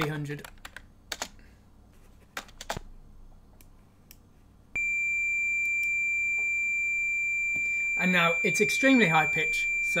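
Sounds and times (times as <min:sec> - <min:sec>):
high-pitched square-wave beep: 0:04.8 - 0:10.0.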